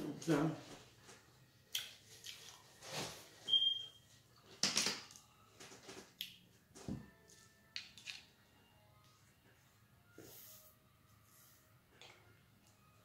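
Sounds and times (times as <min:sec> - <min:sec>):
brief high squeak: 0:03.5 - 0:03.9.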